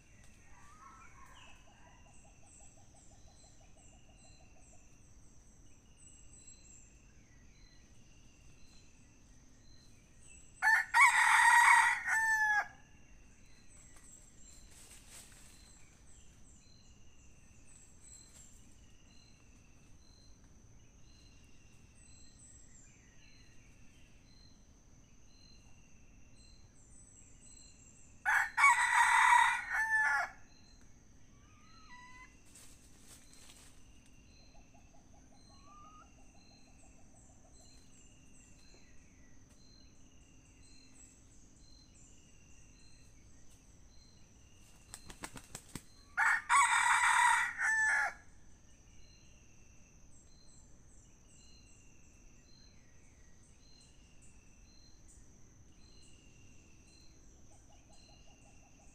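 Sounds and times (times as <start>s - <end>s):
high insect drone: 3.3s - 57.3s
rooster crowing: 10.6s - 12.8s, 28.2s - 30.4s, 46.2s - 48.2s.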